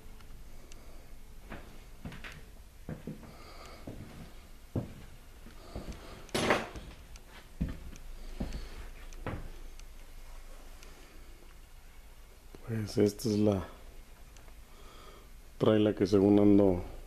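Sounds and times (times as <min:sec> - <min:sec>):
footsteps on bare floor: 0:01.4 - 0:09.6.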